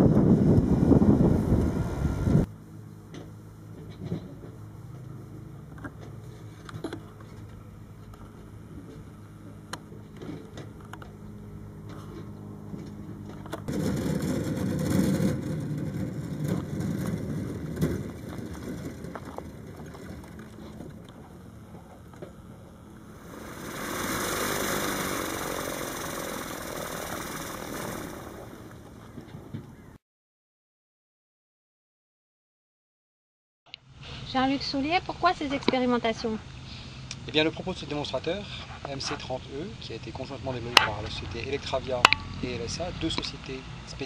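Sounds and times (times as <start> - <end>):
aircraft propeller hum: 0.0 - 30.0.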